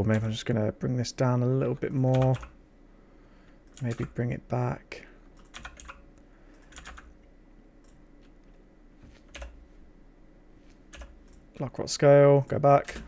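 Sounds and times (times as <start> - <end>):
faint computer keyboard keystrokes: 1.9 - 2.6, 3.6 - 4.2, 5.4 - 7.2, 9.3 - 9.6, 10.9 - 11.5.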